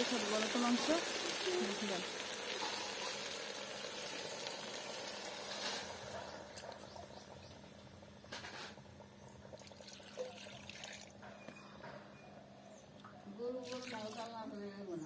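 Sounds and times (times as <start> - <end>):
water pouring and splashing: 0.0 - 6.1, 9.6 - 11.2, 13.6 - 14.4.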